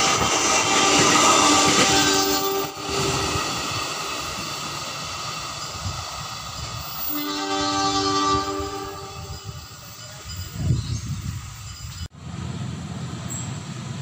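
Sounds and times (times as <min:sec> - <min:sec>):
passing train rumble: 0:00.0 - 0:14.0
two-tone train horn: 0:00.6 - 0:03.3, 0:07.1 - 0:09.5.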